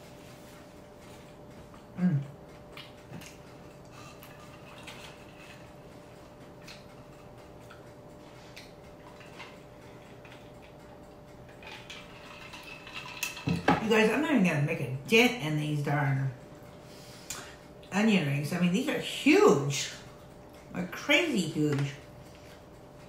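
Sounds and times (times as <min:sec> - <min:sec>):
faint steady hum: 0:00.0 - 0:23.0
person humming mm: 0:02.0 - 0:02.4.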